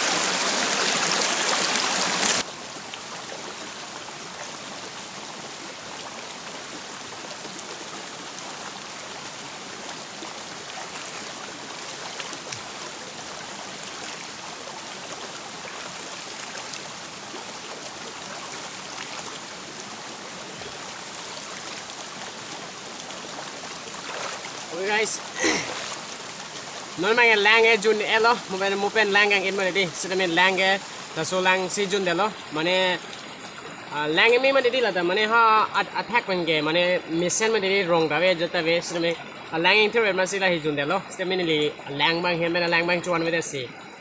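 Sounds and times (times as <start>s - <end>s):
stream flowing over stones: 0.0s - 44.0s.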